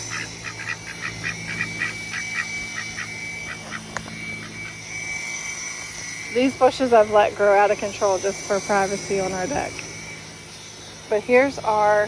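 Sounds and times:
ducks quacking: 0.0s - 3.8s.

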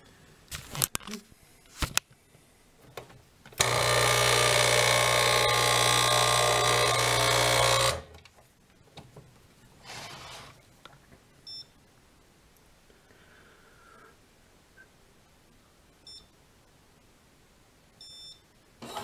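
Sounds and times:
espresso machine pump buzzing: 3.6s - 8.0s.

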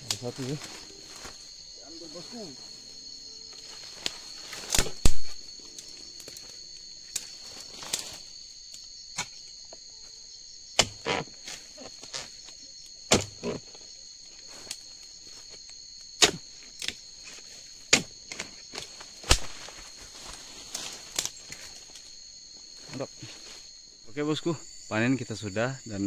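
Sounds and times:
high insect buzz: 0.0s - 26.0s
chisel chopping into stalk: 10.8s - 11.2s, 13.1s - 13.6s, 16.2s - 17.0s, 17.9s - 18.5s.

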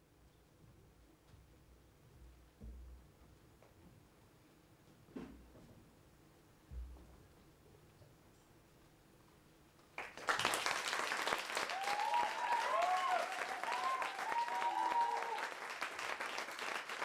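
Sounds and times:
audience applause: 10.0s - 17.0s
voices cheering: 11.6s - 15.7s.

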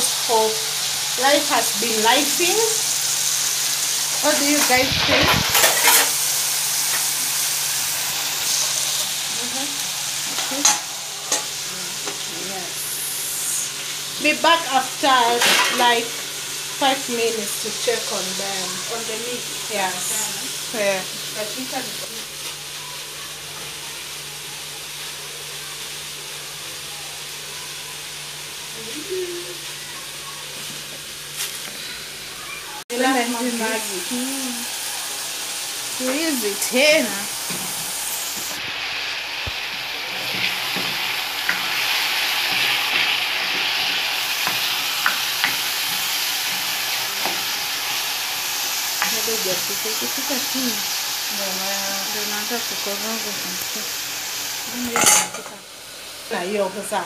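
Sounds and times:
beef sizzling in a saucepan: 0.0s - 57.0s
hissing of pots on gas stove: 0.0s - 57.0s
wooden spoon knocking on pan: 44.4s - 45.6s.

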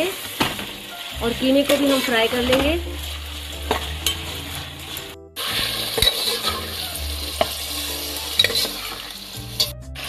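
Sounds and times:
meat sizzling in hot oil: 0.0s - 10.0s
metal spoon scraping pot: 5.8s - 7.6s, 8.3s - 9.8s.

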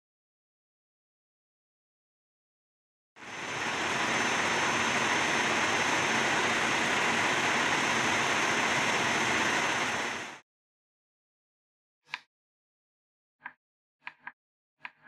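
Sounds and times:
cordless vacuum running: 3.2s - 10.4s.

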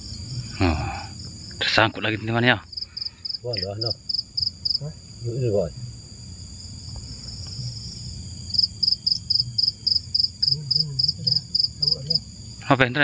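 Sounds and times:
cricket chirping: 0.0s - 13.0s
night insects droning: 0.0s - 13.0s
man murmuring: 0.5s - 1.8s.

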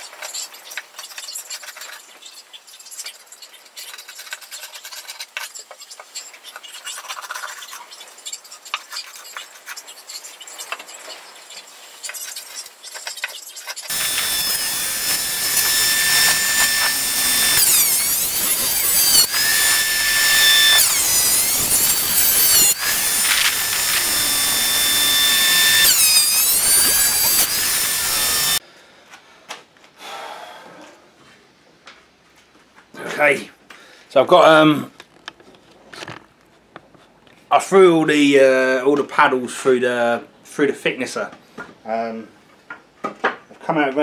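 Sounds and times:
planer cutting wood with high whine: 13.9s - 28.6s.

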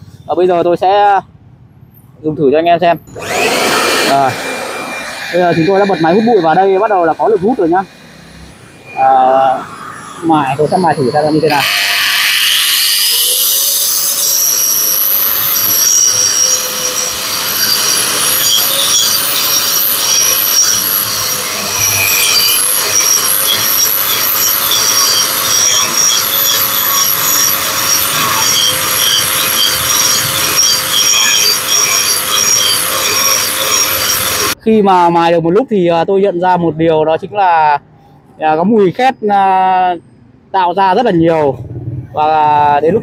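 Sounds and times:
wall chaser grinding concrete: 3.1s - 34.6s
steady hum: 3.4s - 12.0s.

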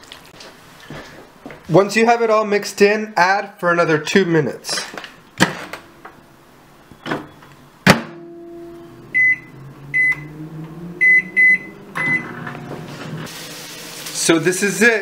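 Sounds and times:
microwave humming: 5.4s - 14.4s
high keypad beeps: 9.1s - 10.3s, 11.0s - 12.3s.

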